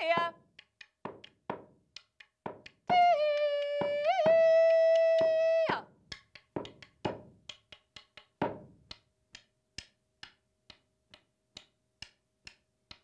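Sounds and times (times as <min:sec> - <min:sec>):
sharp wooden knocks: 0:00.0 - 0:02.9, 0:06.1 - 0:10.8.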